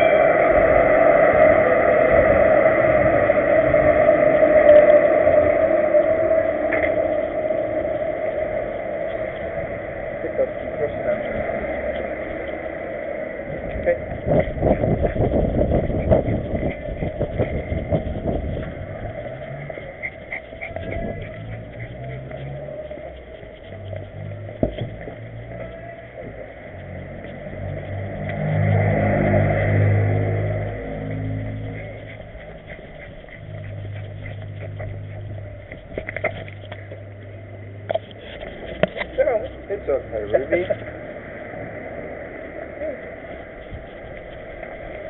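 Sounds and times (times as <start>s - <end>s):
low street traffic hum: 0.0s - 45.0s.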